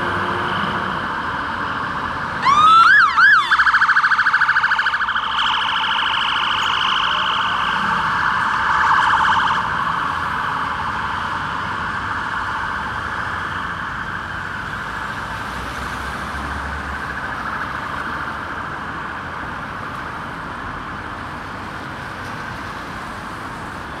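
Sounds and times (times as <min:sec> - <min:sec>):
fire engine sirens wailing: 0:00.0 - 0:24.0
low road traffic rumble: 0:00.0 - 0:24.0.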